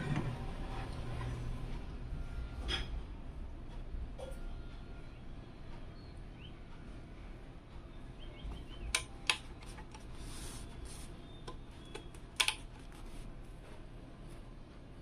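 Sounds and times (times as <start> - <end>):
sharp clicks and taps: 11.4 - 12.7.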